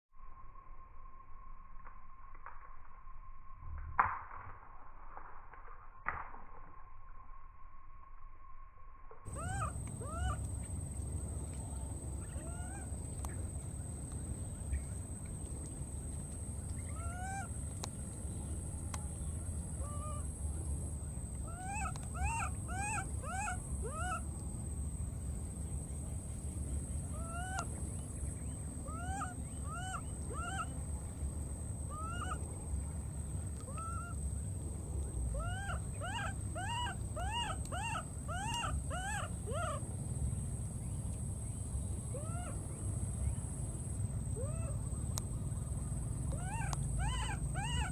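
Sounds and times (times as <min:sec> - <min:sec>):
constant high whine: 0:00.2 - 0:47.9
steady low rumble: 0:09.2 - 0:47.9
baby monkey crying: 0:09.3 - 0:10.4, 0:21.5 - 0:24.2, 0:35.4 - 0:39.8, 0:46.3 - 0:47.9.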